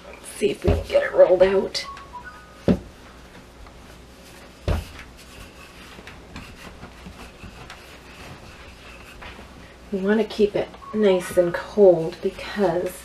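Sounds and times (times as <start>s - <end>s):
rolling pin rubbing dough: 3.9s - 13.0s
rolling pin thump: 4.6s - 5.1s.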